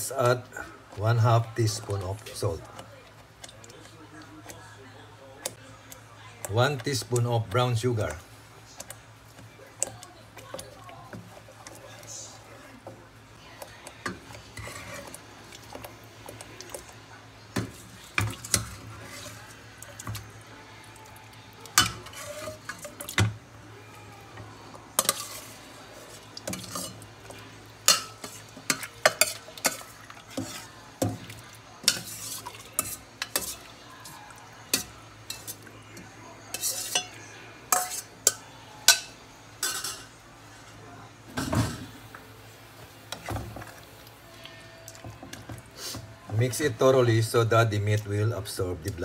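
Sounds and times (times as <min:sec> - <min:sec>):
metal spoon scraping pot: 0:14.3 - 0:15.2, 0:21.8 - 0:23.1, 0:25.0 - 0:25.6, 0:26.5 - 0:27.0, 0:31.8 - 0:33.7, 0:36.5 - 0:40.1.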